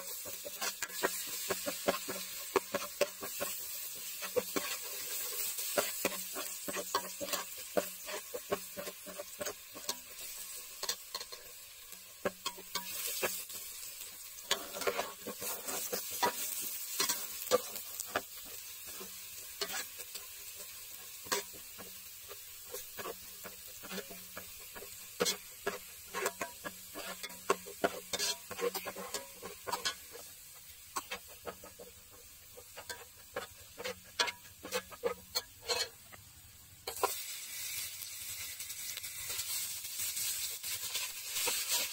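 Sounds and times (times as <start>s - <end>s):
garlic sizzling in oil: 0.0s - 41.9s
metal spoon scraping pot: 0.2s - 11.5s, 14.4s - 18.3s, 18.9s - 20.3s, 22.7s - 30.3s, 32.6s - 36.1s.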